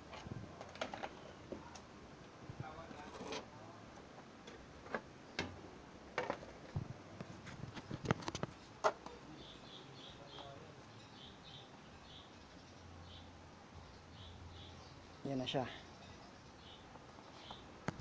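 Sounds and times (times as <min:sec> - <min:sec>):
clicks and knocks of handling: 0:07.2 - 0:09.2.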